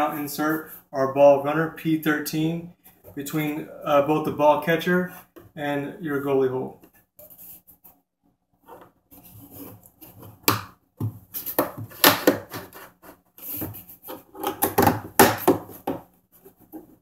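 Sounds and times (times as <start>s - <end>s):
plastic hose rubbing and scraping: 8.6s - 10.5s.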